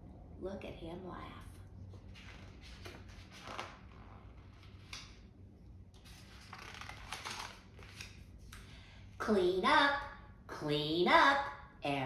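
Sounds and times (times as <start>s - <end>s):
book pages rustling: 2.0s - 5.3s, 5.9s - 8.7s.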